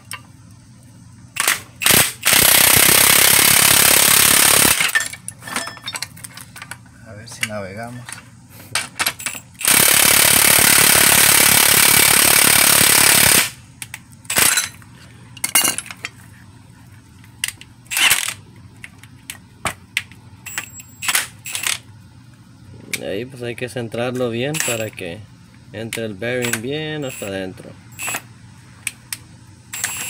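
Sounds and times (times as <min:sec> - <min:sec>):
metallic clinks and knocks: 0:04.9 - 0:06.8.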